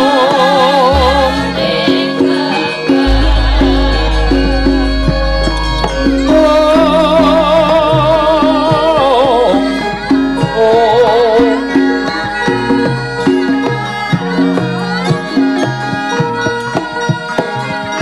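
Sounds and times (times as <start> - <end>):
woman singing with vibrato: 0.0 - 12.1
gamelan metallophones: 0.6 - 14.8
deep low tone: 0.9 - 11.4.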